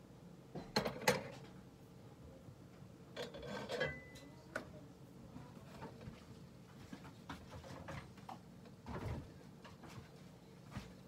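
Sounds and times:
ceramic plate clinking: 0:03.2 - 0:04.3.

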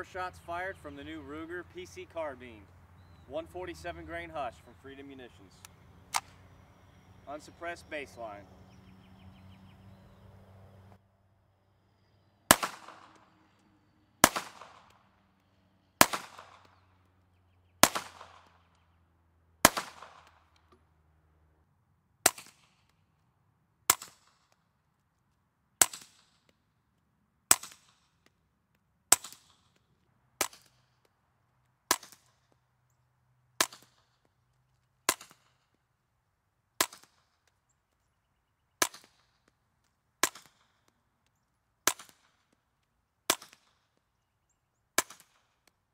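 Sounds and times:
loud gunshots with echo: 0:12.5 - 0:13.2, 0:14.2 - 0:14.9, 0:16.0 - 0:16.7, 0:17.8 - 0:18.5, 0:19.6 - 0:20.3
suppressed gunshots: 0:12.5 - 0:13.4, 0:14.2 - 0:15.0, 0:16.0 - 0:16.8, 0:17.8 - 0:18.6, 0:19.6 - 0:20.5, 0:40.2 - 0:40.7.

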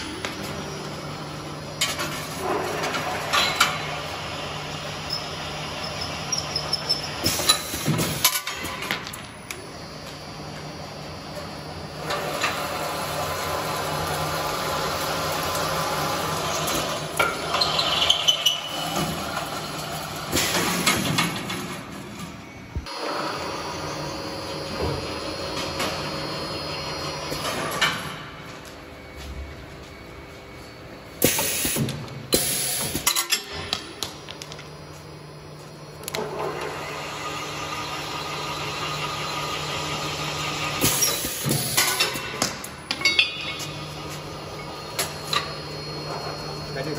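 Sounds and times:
machine motor humming: 0:22.7 - 0:27.8, 0:43.8 - 0:46.9.

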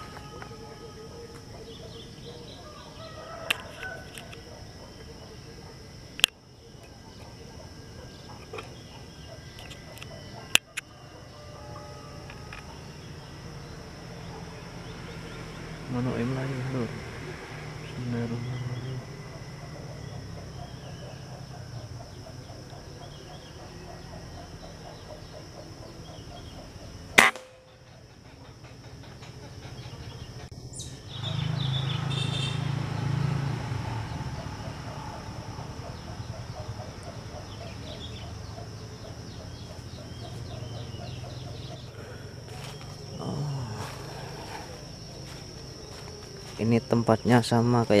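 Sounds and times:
insects droning: 0:00.0 - 0:48.0
air rifle shot: 0:27.2 - 0:27.7.

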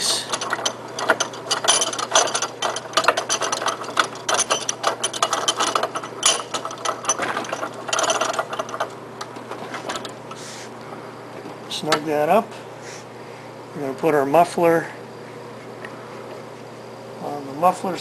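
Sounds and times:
bench vise clicking and rattling: 0:00.0 - 0:10.2.

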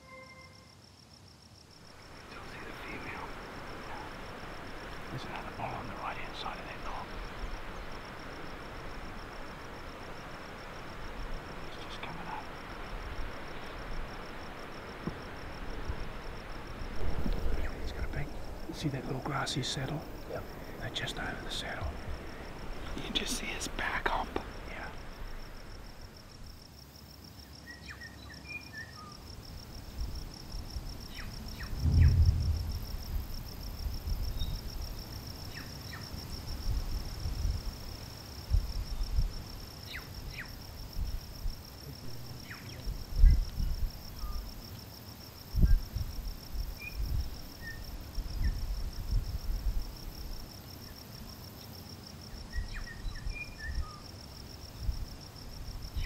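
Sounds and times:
insect chirring: 0:00.0 - 0:56.0
wind buffeting microphone: 0:02.2 - 0:26.1, 0:31.6 - 0:35.0, 0:36.5 - 0:37.8, 0:38.5 - 0:39.4, 0:40.2 - 0:44.5, 0:45.5 - 0:47.4, 0:48.2 - 0:50.4
faint bird chirps: 0:42.0 - 0:44.5, 0:52.5 - 0:54.0.

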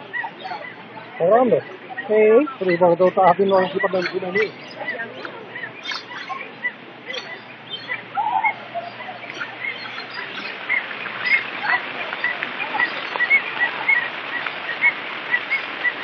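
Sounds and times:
birds chirping: 0:00.0 - 0:16.0
small waterfall splashing into pond: 0:09.3 - 0:16.0.

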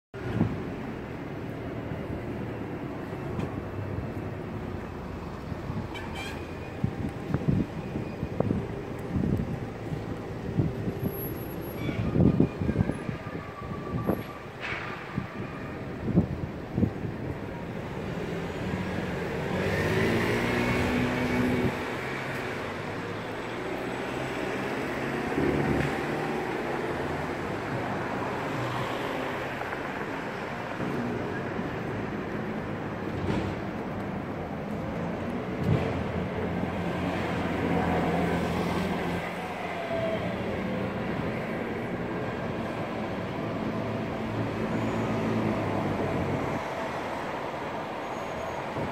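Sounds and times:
city traffic rumble: 0:00.1 - 0:48.9
vehicle passing: 0:18.7 - 0:22.8.

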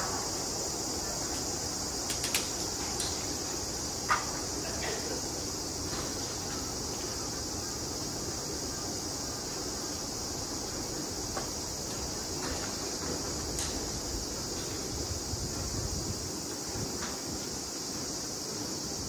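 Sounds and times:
insect chorus chirring: 0:00.0 - 0:19.0
sharp click: 0:02.1 - 0:03.2.

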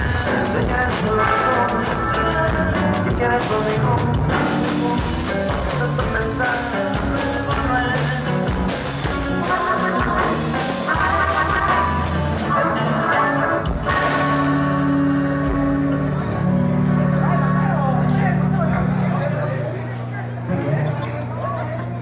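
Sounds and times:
bass: 0:00.0 - 0:22.0
drums: 0:00.0 - 0:22.0
strummed guitar: 0:00.0 - 0:22.0
button accordion melody: 0:08.3 - 0:17.8.

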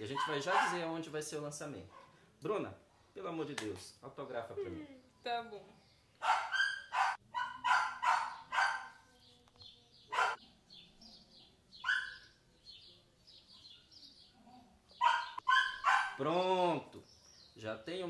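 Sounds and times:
dog barking: 0:00.1 - 0:00.8, 0:06.2 - 0:09.0, 0:10.1 - 0:10.4, 0:11.8 - 0:12.3, 0:15.0 - 0:16.2
faint bird chirps: 0:04.7 - 0:16.1.

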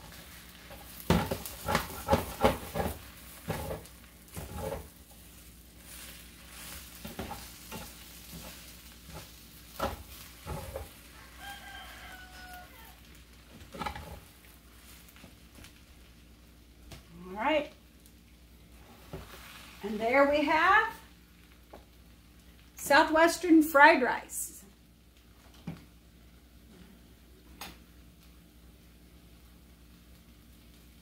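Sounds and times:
spatula scraping a skillet: 0:00.0 - 0:15.3, 0:18.8 - 0:20.0
quiet sizzle: 0:00.0 - 0:31.0.

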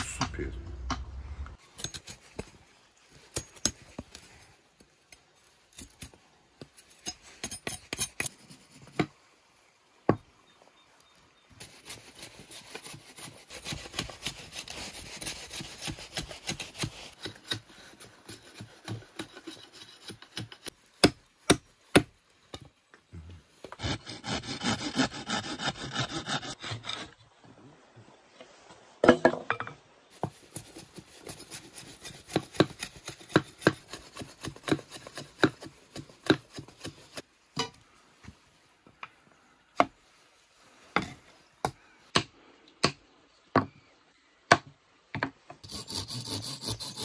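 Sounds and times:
rapid rasping strokes on wood: 0:11.9 - 0:20.7, 0:23.8 - 0:27.0, 0:45.6 - 0:47.0.

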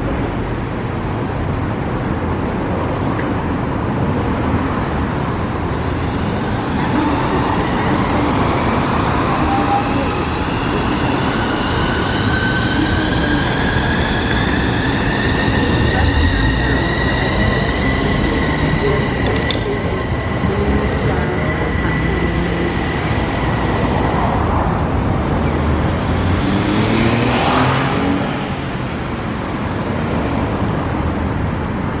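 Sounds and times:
road traffic: 0:00.0 - 0:32.0
tram whine pulling away: 0:04.2 - 0:31.7
brief clicks: 0:19.2 - 0:19.7.

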